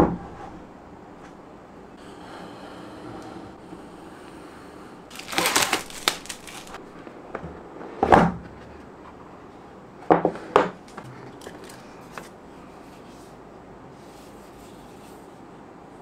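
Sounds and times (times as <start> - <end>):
plastic shrink wrap crinkling: 5.1 - 6.8.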